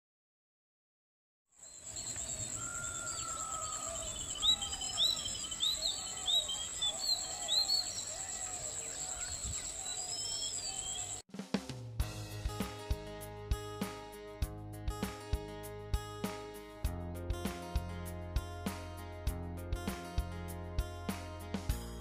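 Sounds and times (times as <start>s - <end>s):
birds chirping: 1.6s - 11.2s
insect trill: 1.6s - 11.2s
low warbling bird calls: 1.7s - 11.2s.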